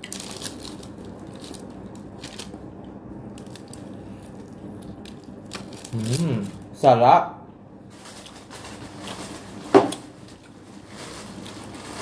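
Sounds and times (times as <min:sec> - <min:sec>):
crunchy chewing of fried chicken: 0:00.0 - 0:06.7.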